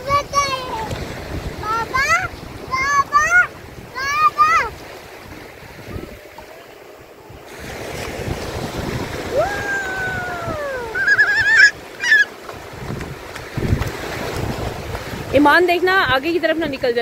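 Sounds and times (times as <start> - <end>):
small waves washing: 0.0 - 17.0
young child calling: 1.6 - 4.8, 9.3 - 12.3
child squealing: 9.3 - 12.3.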